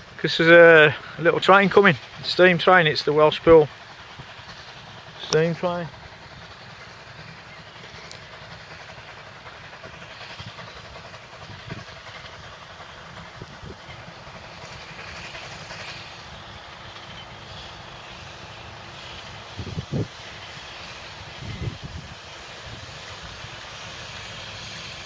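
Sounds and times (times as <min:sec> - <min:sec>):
steam train rumble and hiss: 0:00.0 - 0:25.0.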